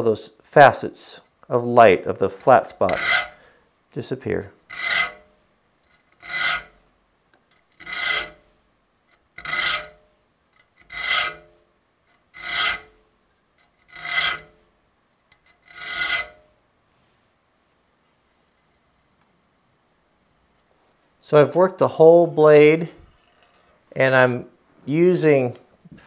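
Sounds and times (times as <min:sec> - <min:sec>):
file rasping on saw teeth: 0:02.9 - 0:03.4, 0:04.7 - 0:05.3, 0:05.9 - 0:06.8, 0:07.7 - 0:08.4, 0:09.4 - 0:10.0, 0:10.8 - 0:11.5, 0:12.1 - 0:12.9, 0:13.6 - 0:14.6, 0:15.5 - 0:16.4.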